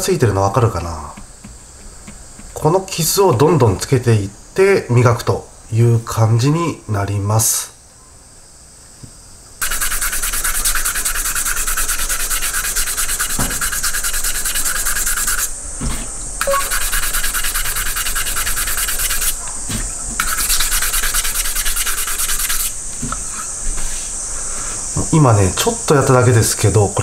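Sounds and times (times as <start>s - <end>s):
sandpaper scrubbing metal: 9.6s - 15.5s, 16.4s - 19.4s, 20.2s - 22.8s.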